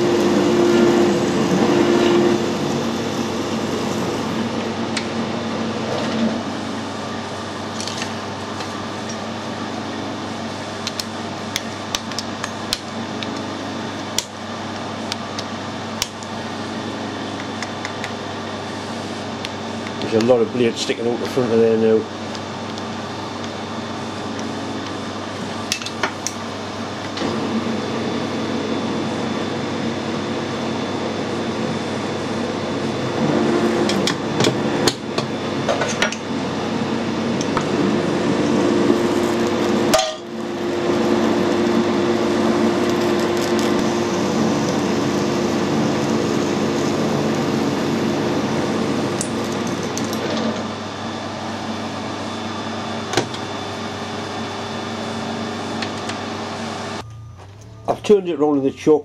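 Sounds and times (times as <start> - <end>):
metal lathe cutting steel: 0.0 - 7.8, 27.2 - 53.1.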